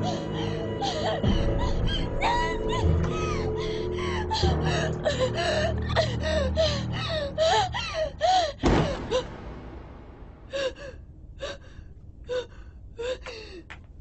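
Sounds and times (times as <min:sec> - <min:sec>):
low ominous music drone: 0:00.0 - 0:13.6
loud thud: 0:08.6 - 0:10.5.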